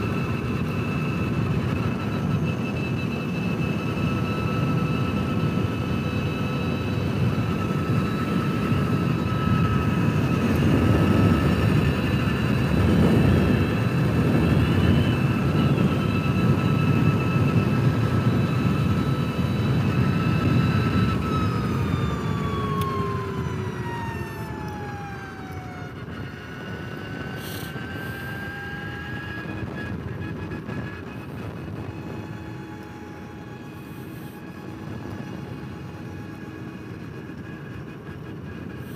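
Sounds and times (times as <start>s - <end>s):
electric motor whine: 0.0s - 38.9s
wind noise: 0.0s - 38.9s.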